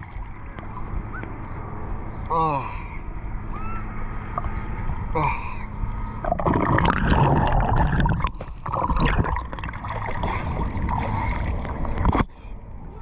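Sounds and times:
water splashing and sloshing: 0.0 - 2.1, 6.0 - 12.4
muffled underwater gurgling: 6.2 - 13.0.

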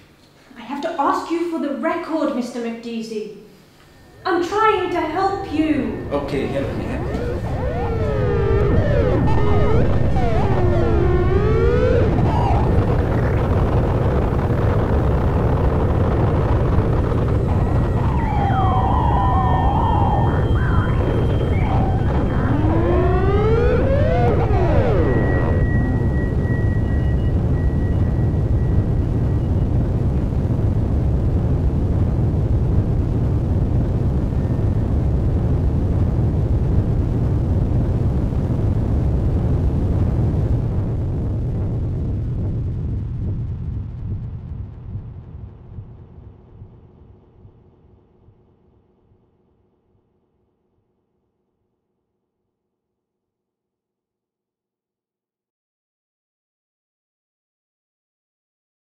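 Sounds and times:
sliding wavering electronic tones: 3.9 - 30.2
low rumble: 4.0 - 47.6.

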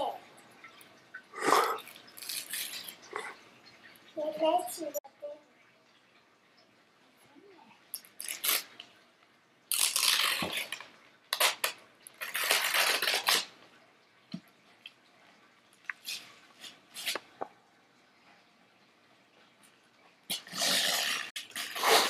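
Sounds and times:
wrapping paper tearing: 1.6 - 3.0, 8.1 - 8.7, 9.7 - 13.5, 20.3 - 22.0
wrapping paper crackling: 8.1 - 8.7, 9.7 - 13.5.

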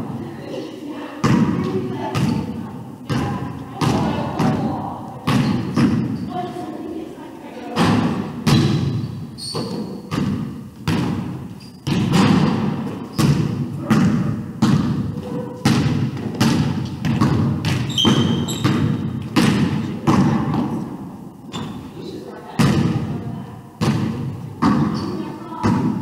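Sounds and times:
basketball bouncing on hardwood floor: 5.2 - 6.2, 7.8 - 20.7.

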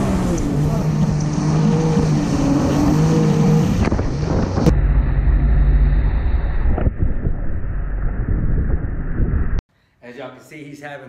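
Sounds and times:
water rushing: 0.0 - 4.7
wind buffeting microphone: 0.0 - 5.3, 6.4 - 9.6
jet ski engine drone: 0.0 - 9.2.

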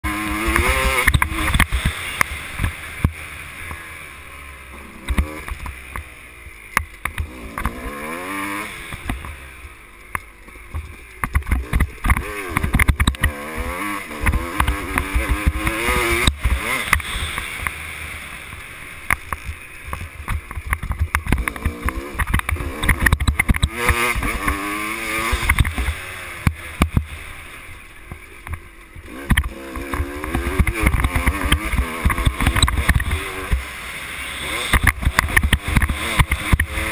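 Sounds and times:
dirt bike engine revving: 0.0 - 36.9
sharp knocks from bumps: 19.1 - 24.6, 28.1 - 33.7.

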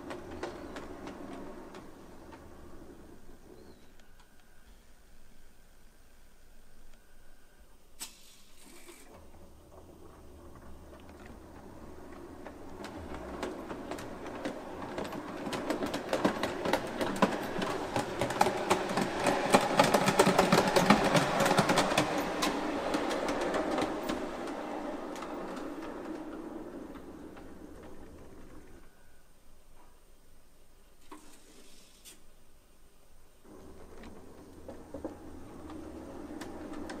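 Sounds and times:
model train wheels clicking: 8.0 - 28.9, 33.5 - 37.0
model train drive hum: 33.5 - 37.0.

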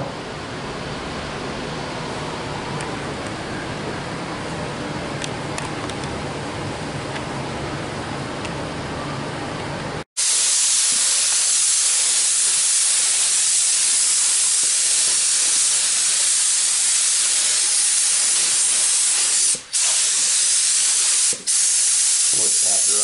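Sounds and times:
paint spray gun hissing: 10.2 - 23.0.

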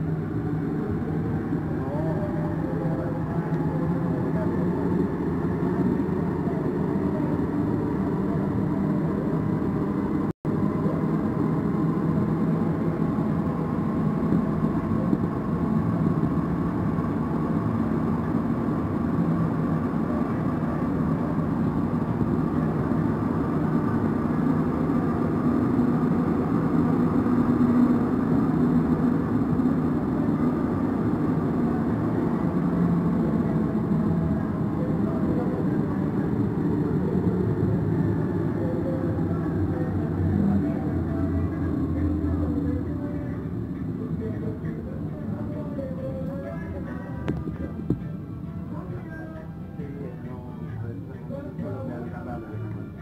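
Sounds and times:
faint running tones: 0.0 - 53.0
metro train rumble and whir: 0.0 - 53.0.

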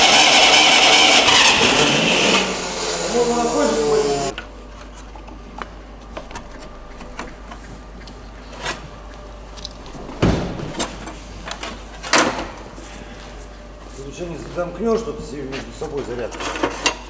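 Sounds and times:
loud clunks: 10.0 - 11.0.

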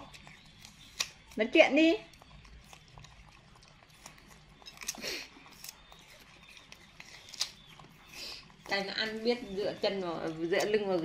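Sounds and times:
wet smacking clicks: 0.0 - 8.8
monkeys crunching apples: 0.0 - 11.0.

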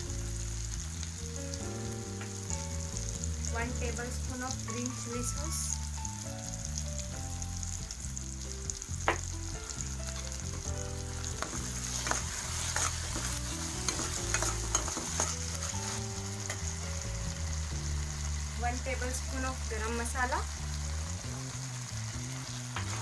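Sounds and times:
vegetables sizzling in oil: 0.0 - 23.0
metal spatula scraping pan: 11.4 - 16.7.

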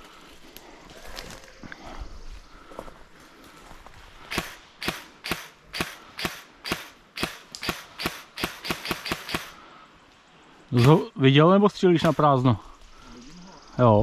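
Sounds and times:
airsoft gun shots: 4.3 - 9.6.

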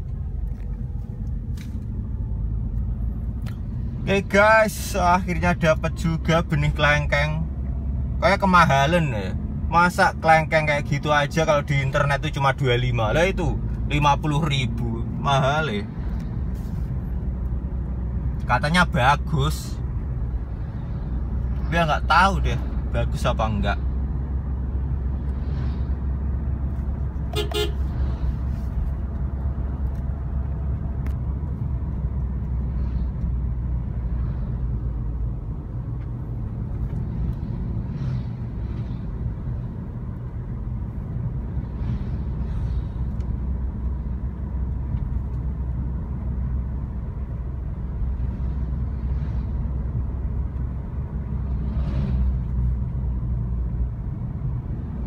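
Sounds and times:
road and engine rumble: 0.0 - 55.0
vehicle horn toot: 27.3 - 27.9.

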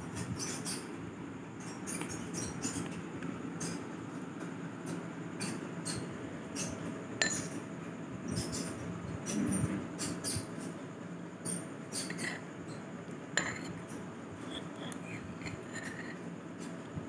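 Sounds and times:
metal spoon clinking on ceramic bowl: 7.2 - 7.6, 13.4 - 13.8.

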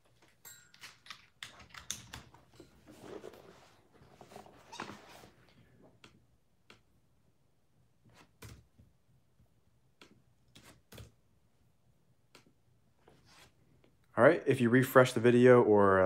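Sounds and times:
keyboard and mouse clicks: 0.8 - 2.5.

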